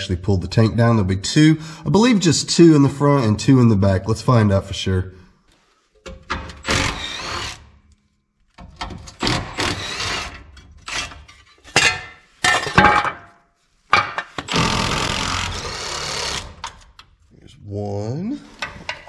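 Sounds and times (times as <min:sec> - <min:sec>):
power tool bursts: 0:06.6 - 0:07.7, 0:09.2 - 0:10.5, 0:14.4 - 0:16.7.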